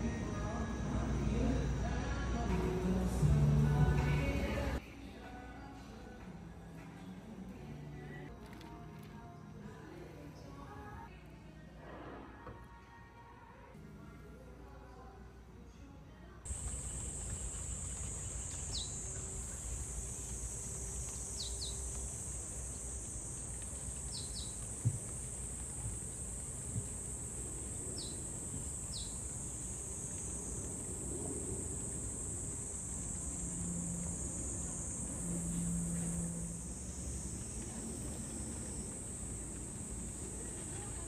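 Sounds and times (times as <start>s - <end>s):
insects droning: 0.0s - 4.8s, 16.5s - 41.0s
low outdoor rumble: 0.0s - 4.8s, 16.5s - 41.0s
high bird chirps: 16.5s - 19.7s, 21.1s - 22.0s, 24.0s - 24.7s, 27.9s - 29.8s.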